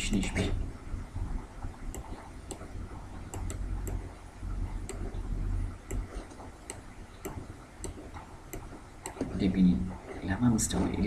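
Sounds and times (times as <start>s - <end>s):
steady low hum: 0.0s - 11.0s
computer mouse clicking: 1.9s - 9.4s.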